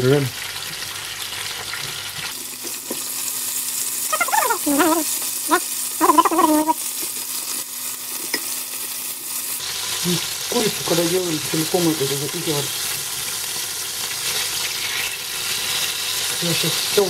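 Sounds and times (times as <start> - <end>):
food sizzling in oil: 0.0 - 17.0
short voice sounds: 4.1 - 6.8.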